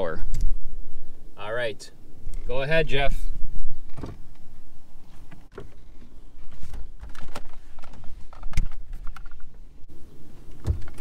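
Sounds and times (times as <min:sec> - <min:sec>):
car rolling rumble: 0:00.0 - 0:11.0
creaks clicks and knocks: 0:05.3 - 0:09.6, 0:10.4 - 0:11.0.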